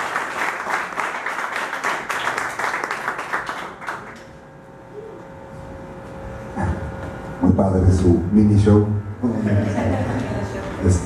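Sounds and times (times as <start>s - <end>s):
audience applauding: 0.0s - 4.2s.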